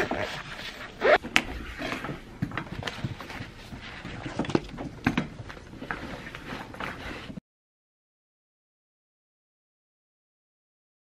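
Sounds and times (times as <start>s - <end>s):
zipper on laptop case: 0.0s - 2.2s, 5.8s - 7.4s.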